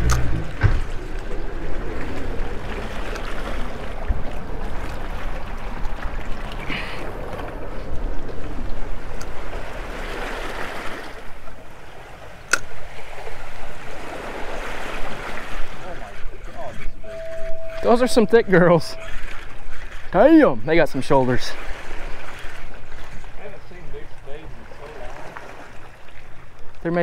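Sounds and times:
water lapping against hull: 0.0 - 27.0
sharp click: 12.5 - 12.7.

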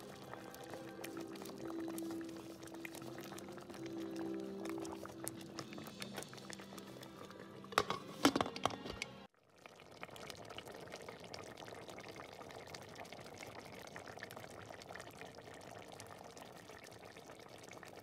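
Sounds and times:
stew simmering with bubbling: 0.0 - 18.0.

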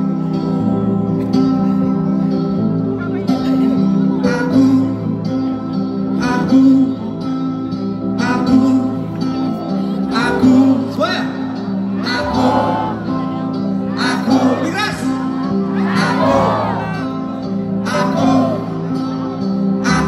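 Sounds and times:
live band playing slow song: 0.0 - 20.0
person singing: 11.9 - 20.0.

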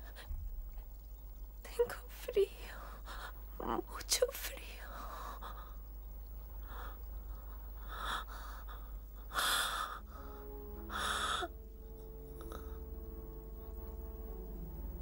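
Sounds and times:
soft sustained music: 6.0 - 15.0.

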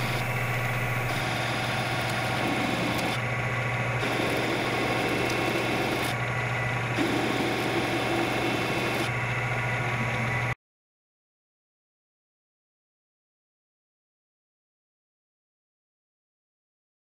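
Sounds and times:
lathe spindle humming: 0.0 - 10.6.

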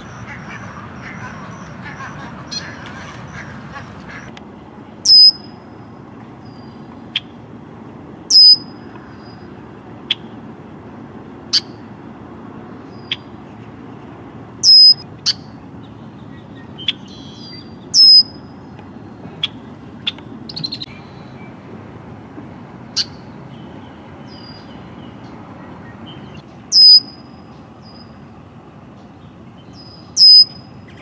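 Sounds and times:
buzzy bird call: 0.0 - 4.3, 5.0 - 5.5, 8.3 - 9.5, 14.6 - 15.6, 16.2 - 18.5, 25.8 - 28.2, 29.7 - 31.0
blackbird calling: 0.0 - 4.4, 5.0 - 5.6, 8.3 - 10.4, 12.9 - 21.5, 22.9 - 28.2, 29.2 - 31.0
steady background noise: 0.0 - 31.0
quiet bird chips: 14.6 - 18.4.

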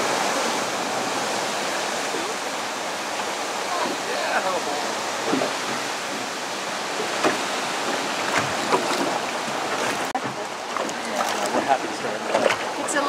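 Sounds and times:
water lapping at boat: 0.0 - 13.0
small sharp splashes: 5.2 - 13.0.

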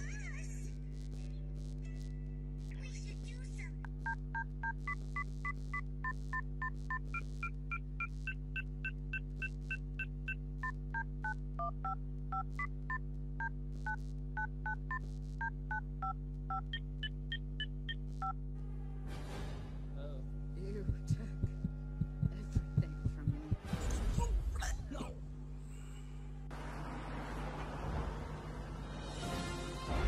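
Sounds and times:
steady low hum: 0.0 - 28.8.

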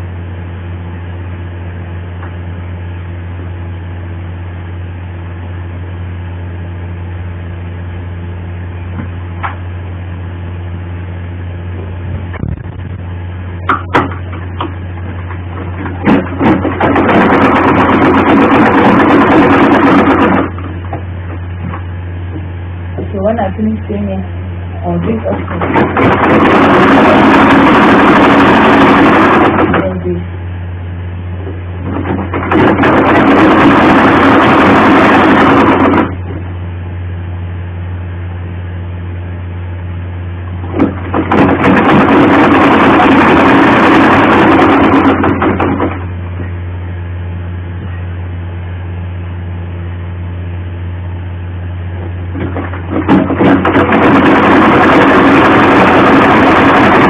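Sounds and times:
steady low hum: 0.0 - 57.0
sewing machine stitching: 15.8 - 20.7, 25.3 - 29.9, 31.9 - 36.2, 40.7 - 46.0, 52.9 - 57.0.

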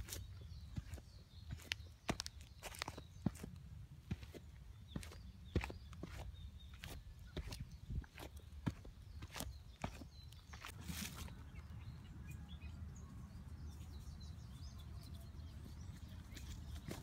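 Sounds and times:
footsteps on leaf litter: 0.0 - 11.5.

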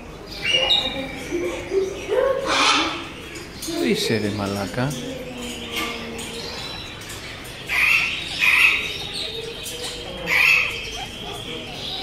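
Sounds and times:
parrot squawking: 2.4 - 3.2, 5.4 - 12.0.

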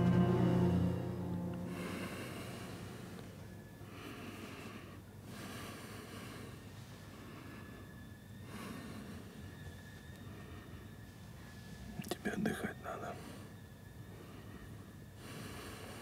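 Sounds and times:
low steady hum: 0.0 - 4.1
heavy breathing through nose: 3.9 - 7.9, 13.1 - 16.0.

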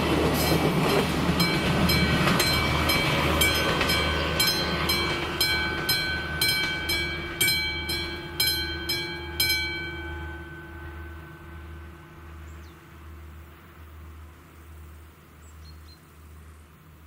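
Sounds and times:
passing train rumble: 0.0 - 17.0
level crossing bell ringing: 1.4 - 12.0.

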